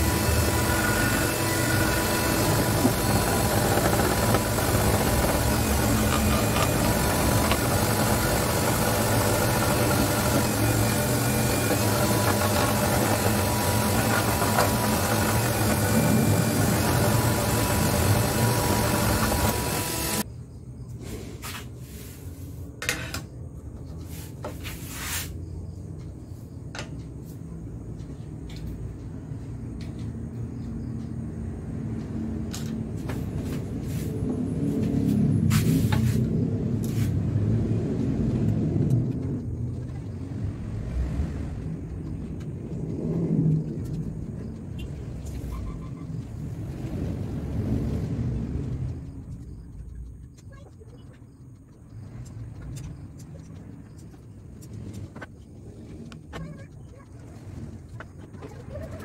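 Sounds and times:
scroll saw cutting acrylic: 0.0s - 20.2s
sharp clicks and knocks: 48.8s - 59.0s.

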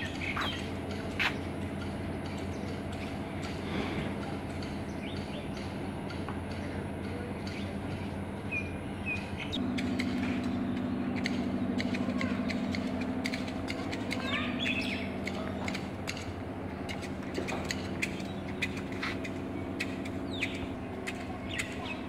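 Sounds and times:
bird chirps: 0.0s - 1.5s, 7.4s - 11.9s, 14.2s - 15.8s, 17.7s - 22.0s
low mechanical hum: 0.0s - 22.0s
sharp clicks: 9.2s - 16.3s.

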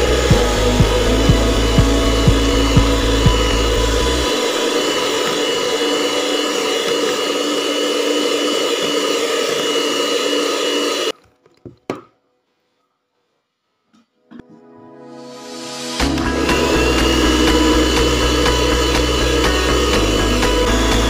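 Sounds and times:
electric hand mixer whirring: 0.0s - 11.1s, 15.9s - 21.0s.

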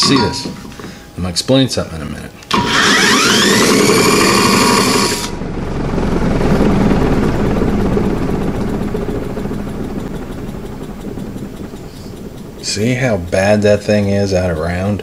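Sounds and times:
power tool whining: 2.5s - 13.0s
mower spindle whirring: 2.5s - 14.5s.

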